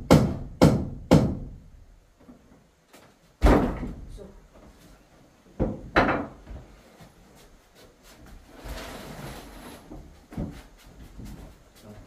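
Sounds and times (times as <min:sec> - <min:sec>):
wooden boards knocking: 0:05.6 - 0:06.6
boards scraping: 0:08.3 - 0:10.7.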